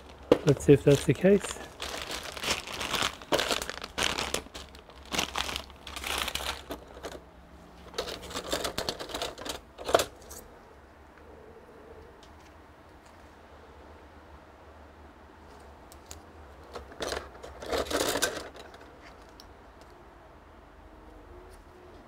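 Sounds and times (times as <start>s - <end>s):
plastic bag crinkling: 0.0s - 7.2s, 7.9s - 10.1s.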